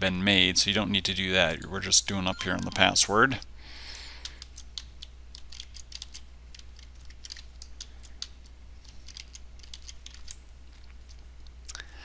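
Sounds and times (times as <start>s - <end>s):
low steady hum: 0.0s - 12.0s
keyboard typing: 2.3s - 3.0s, 4.2s - 10.4s.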